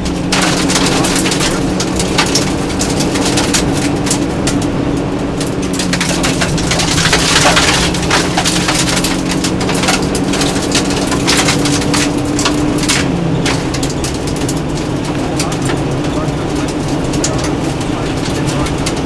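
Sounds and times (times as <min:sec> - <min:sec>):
car engine running hard: 0:00.0 - 0:19.0
stones rattling against underbody: 0:05.5 - 0:19.0.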